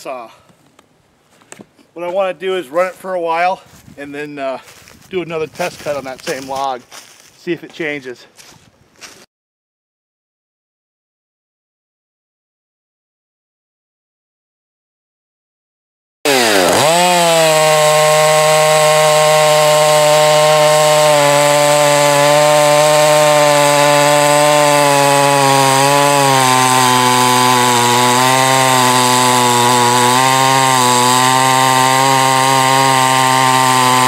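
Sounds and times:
chainsaw cutting through log: 0:16.3 - 0:34.0.

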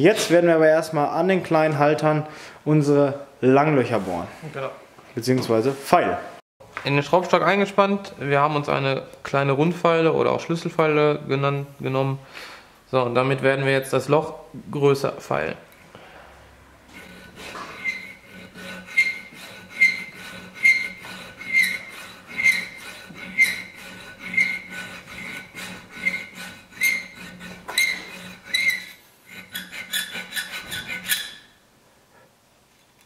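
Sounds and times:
file rasping on steel: 0:16.9 - 0:31.6.

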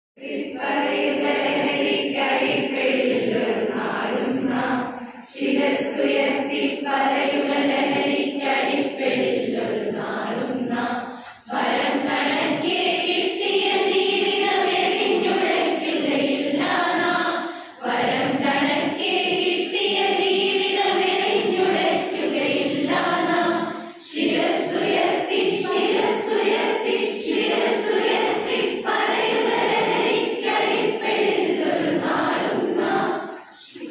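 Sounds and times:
group singing in unison: 0:00.2 - 0:33.9.

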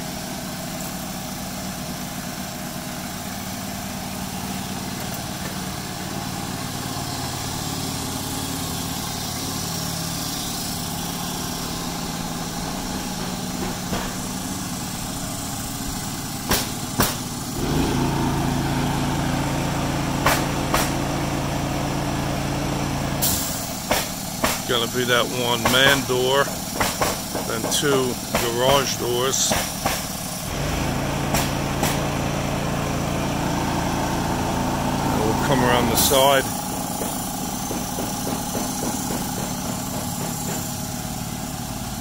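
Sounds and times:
engine running steadily: 0:00.0 - 0:42.0
sharp knocks: 0:12.6 - 0:14.4, 0:16.4 - 0:17.3, 0:20.2 - 0:21.0, 0:23.9 - 0:24.7, 0:25.6 - 0:28.9, 0:29.5 - 0:30.1, 0:31.3 - 0:32.0, 0:36.7 - 0:40.8.

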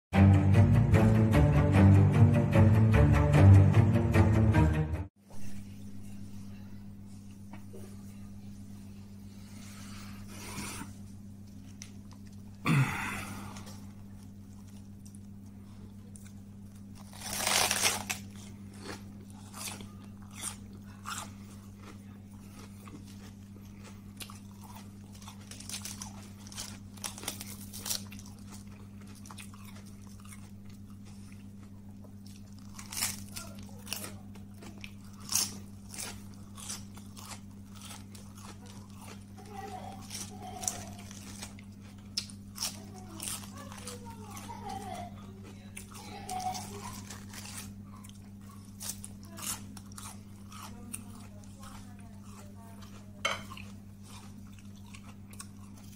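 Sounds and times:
low electrical hum: 0:05.1 - 0:55.9
chewing: 0:09.4 - 0:12.6, 0:13.2 - 0:55.9
lettuce crunching: 0:11.4 - 0:55.9.

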